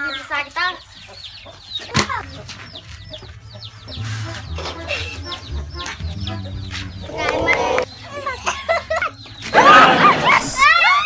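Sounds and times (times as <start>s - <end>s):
hen clucking: 0.0s - 7.9s
chicks peeping: 0.0s - 9.5s.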